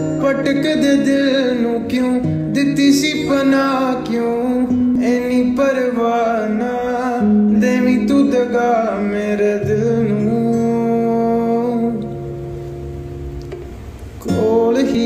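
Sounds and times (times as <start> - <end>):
song with plucked guitar: 0.0 - 15.0.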